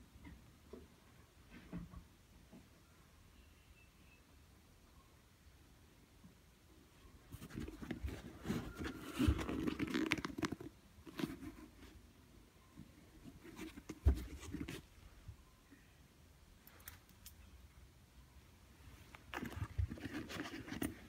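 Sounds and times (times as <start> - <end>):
sneaker rustling and scuffing: 13.7 - 14.8.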